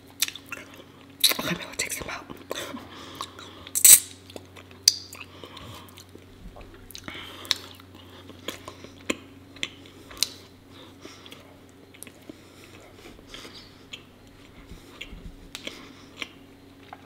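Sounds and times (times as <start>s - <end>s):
close chewing with wet mouth clicks: 11.1s - 17.0s.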